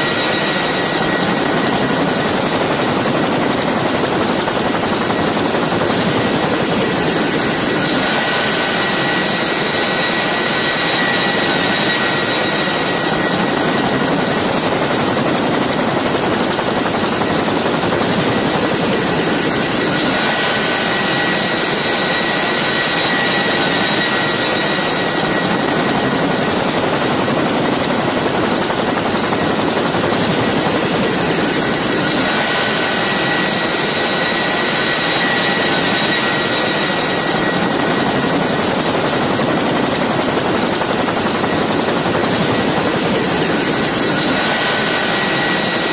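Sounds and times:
helicopter turbine engines and rotors: 0.0s - 45.9s.

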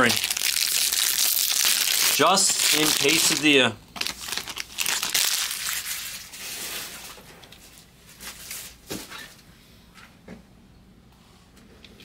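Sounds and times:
foil wrappers crinkling: 0.0s - 8.8s.

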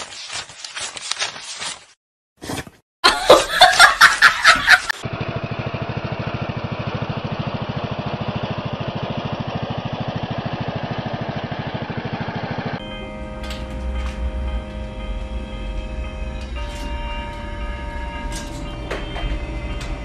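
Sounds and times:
person laughing: 3.0s - 5.0s
ride-on mower engine running: 4.3s - 20.0s.

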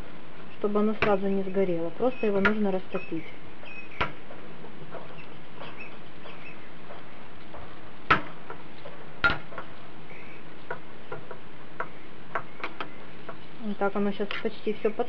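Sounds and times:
background hiss: 0.0s - 15.0s.

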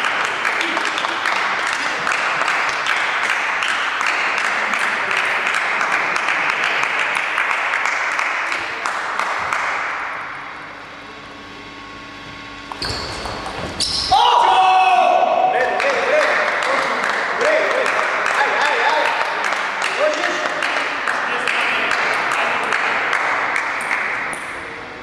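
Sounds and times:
spectators clapping: 0.0s - 10.3s, 15.6s - 24.7s.

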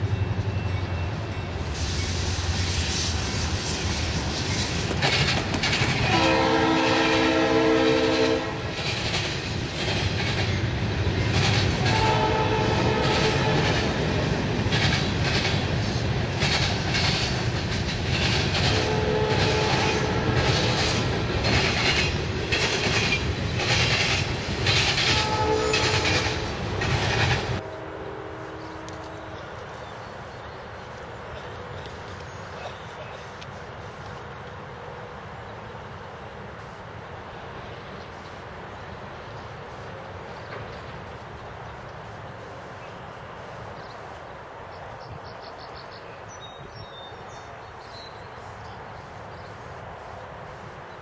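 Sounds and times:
freight train rumbling: 0.0s - 51.0s
wheels clicking over rail joints: 4.2s - 6.3s, 13.0s - 27.6s
locomotive air horn: 6.0s - 8.6s, 11.8s - 13.8s, 18.6s - 20.8s, 25.0s - 26.4s, 27.2s - 29.6s.

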